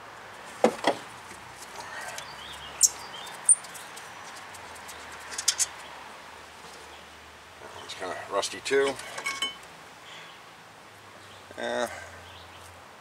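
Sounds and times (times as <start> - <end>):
metal tools clinking: 8.9 - 9.6.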